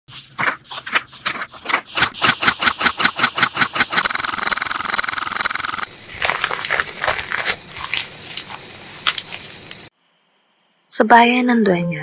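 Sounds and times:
mechanical clicks into buzzing rattle: 2.2s - 5.9s.

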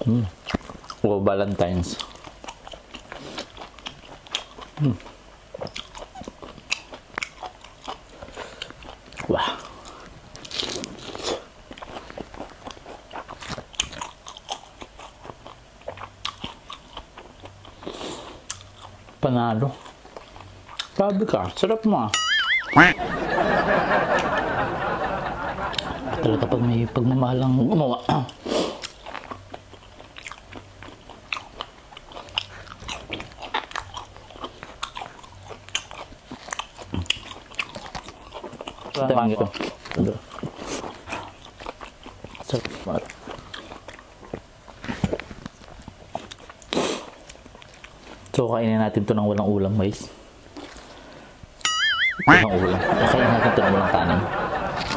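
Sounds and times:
crunchy food being chewed: 0.0s - 21.7s, 27.4s - 48.4s, 50.3s - 51.2s.

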